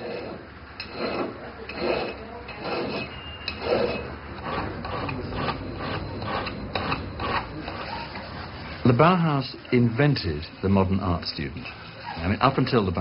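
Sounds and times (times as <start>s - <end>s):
hand file rasping: 0.0s - 8.2s.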